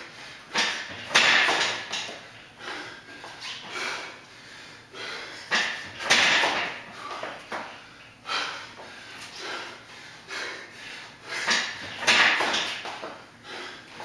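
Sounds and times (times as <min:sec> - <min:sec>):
man gasping for breath: 0:02.6 - 0:05.8, 0:08.2 - 0:11.8, 0:13.2 - 0:14.0.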